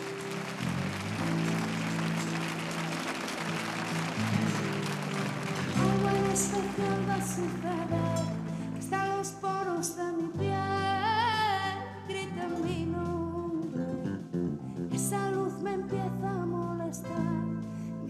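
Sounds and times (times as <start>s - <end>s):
pop band playing: 0.0s - 17.5s
woman singing: 5.7s - 14.3s, 14.9s - 18.0s.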